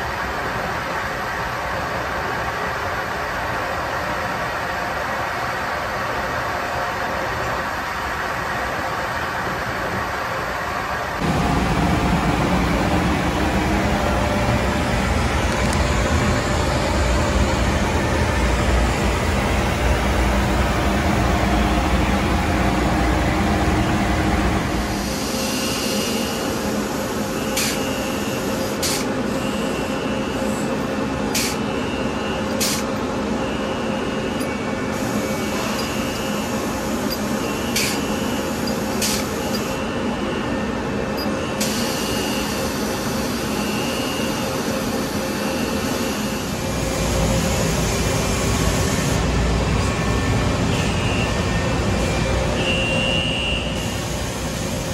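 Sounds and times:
machinery hum with faint whine: 0.0 - 54.9
machinery low rumble: 11.2 - 25.4, 46.6 - 52.9.

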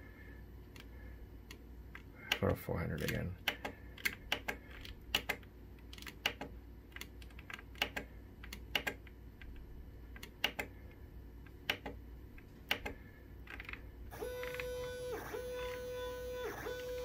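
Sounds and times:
stepper motor whine: 14.1 - 17.0.

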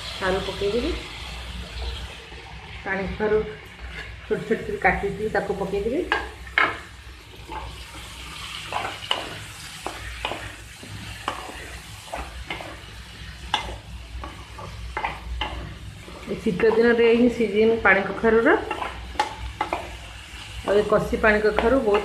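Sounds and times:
food sizzling in oil: 0.0 - 22.0
spatula scraping metal pan: 3.8 - 4.3, 6.1 - 17.3, 18.0 - 20.0.

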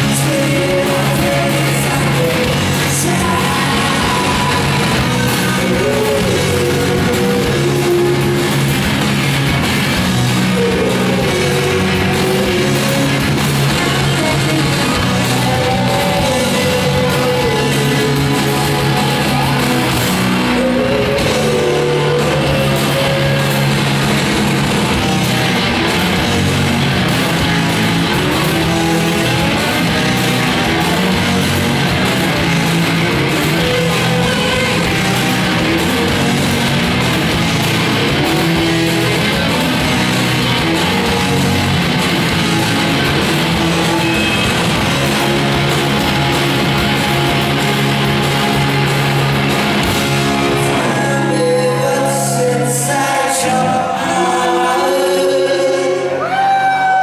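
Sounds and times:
bass guitar: 0.0 - 57.0
distorted electric guitars: 0.0 - 57.0
drums: 0.0 - 57.0.

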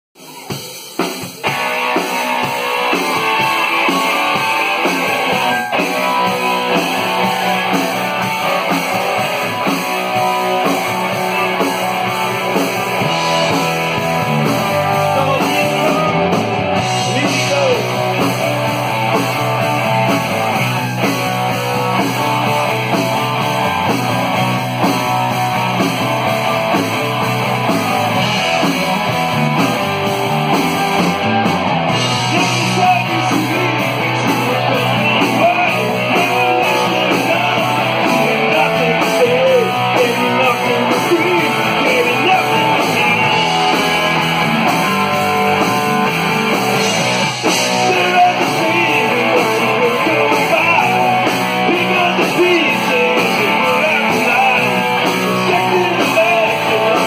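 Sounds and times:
drum kit: 0.2 - 57.0
electric guitars: 0.2 - 57.0
electric bass: 1.2 - 57.0.

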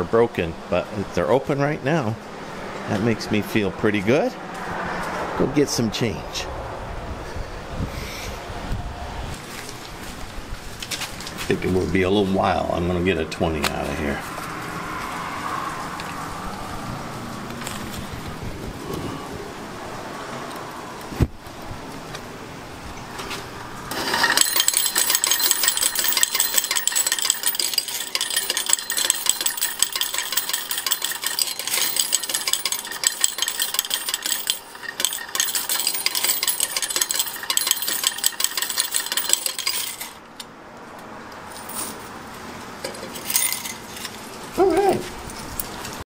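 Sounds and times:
coins clattering into metal cup: 23.9 - 40.2, 42.9 - 44.1
coins clinking as scooped: 23.9 - 40.2, 43.0 - 44.0.

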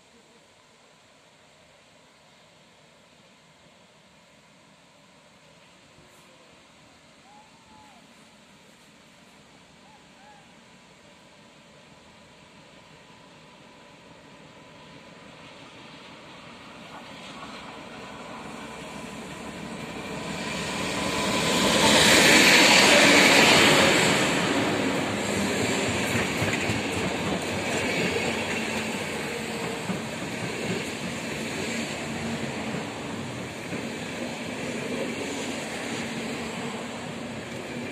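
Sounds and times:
diesel locomotive engine: 4.2 - 37.9.

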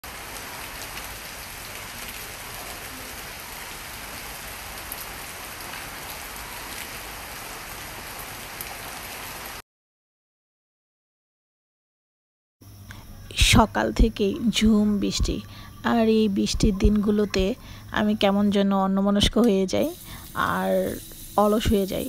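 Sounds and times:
heavy rain on road and leaves: 0.0 - 9.6.

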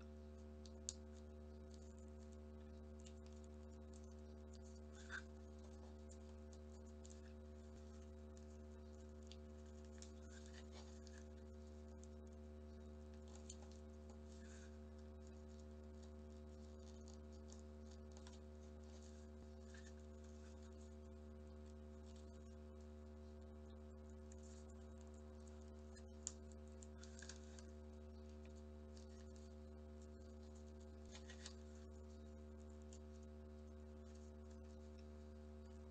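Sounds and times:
steady low hum: 0.0 - 35.9
paper rustling and creasing: 30.1 - 32.1.

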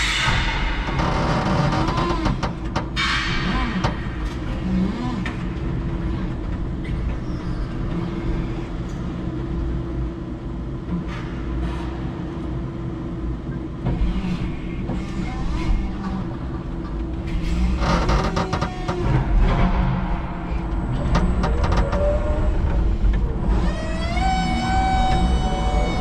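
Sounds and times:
forklift motor hum: 18.0 - 26.0.

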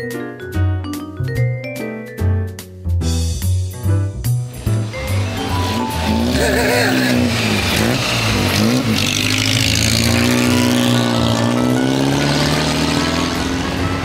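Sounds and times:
car engine revving and driving off: 4.6 - 14.0.

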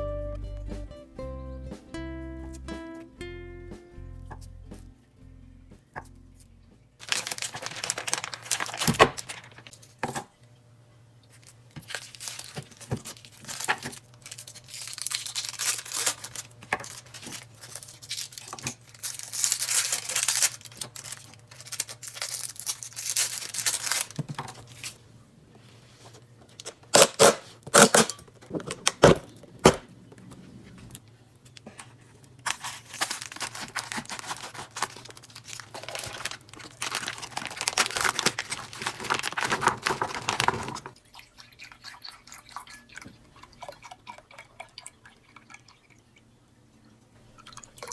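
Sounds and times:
plastic film crinkling and tearing: 7.0 - 9.7, 11.3 - 25.0, 32.4 - 41.0.

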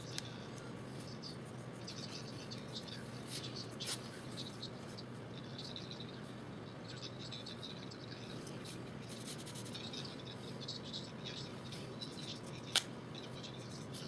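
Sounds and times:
background hum and hiss: 0.0 - 14.0
pencil scratching on paper: 8.7 - 9.9.

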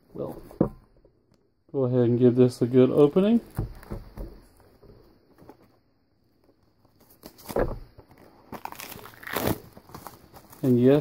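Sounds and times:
plastic case knocks and rustles: 3.5 - 5.0.

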